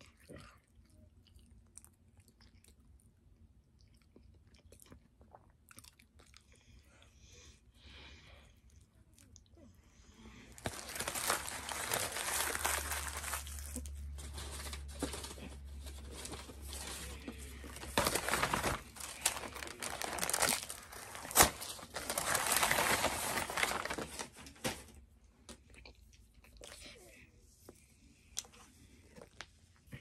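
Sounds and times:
food packaging crinkling: 0:10.5 - 0:25.0.

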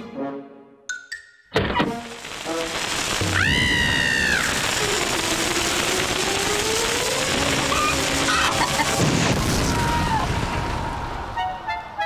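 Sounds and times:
cartoon chicken shrieking: 0:03.3 - 0:04.6, 0:07.6 - 0:08.9.

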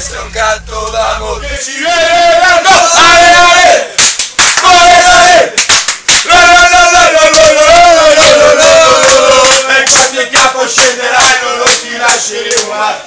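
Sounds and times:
men chanting in unison: 0:00.0 - 0:05.6, 0:06.2 - 0:13.0
sharp claps: 0:04.0 - 0:07.5, 0:09.0 - 0:12.8.

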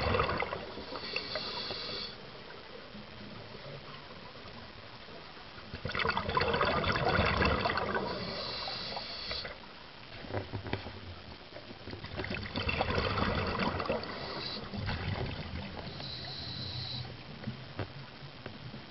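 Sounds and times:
bubbling exhaled air: 0:00.0 - 0:02.2, 0:05.8 - 0:09.6, 0:12.1 - 0:17.1
thin high hiss: 0:00.6 - 0:02.3, 0:08.0 - 0:09.6, 0:14.0 - 0:14.9, 0:15.8 - 0:17.3.

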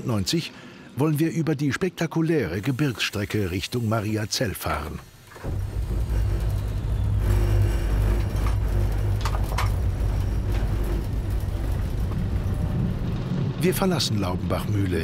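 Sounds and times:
electric locomotive rumble and hum: 0:04.6 - 0:15.0.

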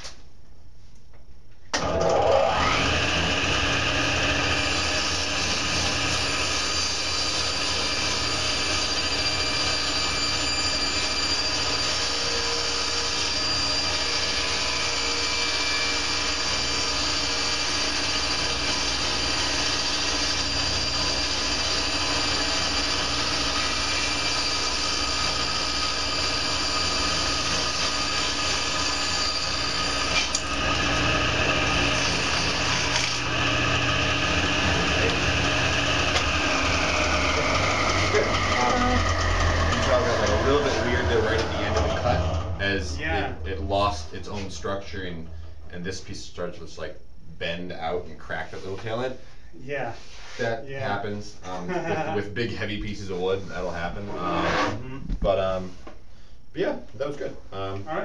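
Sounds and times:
table saw ripping wood: 0:01.8 - 0:42.8.

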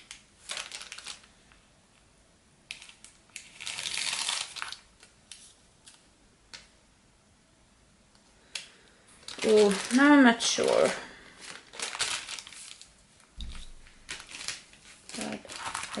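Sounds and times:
paper rustling: 0:00.0 - 0:01.6, 0:02.7 - 0:06.0, 0:09.2 - 0:16.0.

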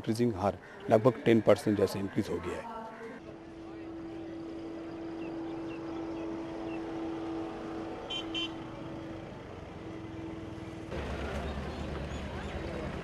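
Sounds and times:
busy street noise: 0:00.0 - 0:13.0
cars driving slowly past: 0:03.1 - 0:13.0.

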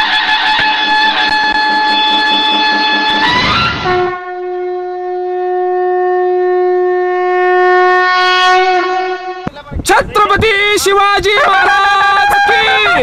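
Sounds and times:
long steady horn blast: 0:00.0 - 0:09.5, 0:11.7 - 0:13.0.

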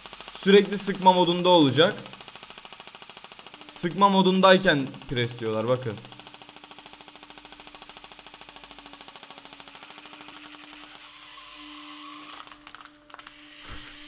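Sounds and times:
plastic cracking: 0:12.3 - 0:13.4
airsoft rifle gearbox rattling: 0:12.4 - 0:13.4.

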